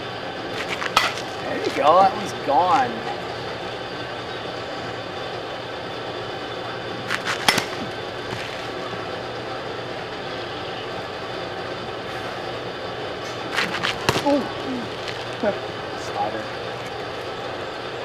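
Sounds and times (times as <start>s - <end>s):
steady hum: 0.0s - 18.0s
bat cracking against baseball: 0.5s - 1.8s, 7.0s - 8.8s, 13.2s - 15.4s.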